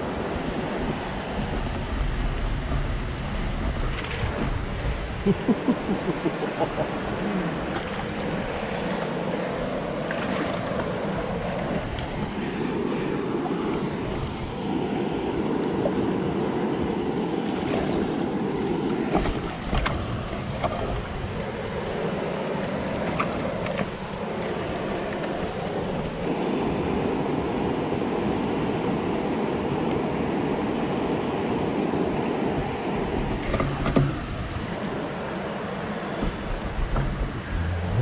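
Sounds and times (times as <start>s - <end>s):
water rushing from spillway: 0.0s - 38.0s
wind on microphone: 36.1s - 38.0s.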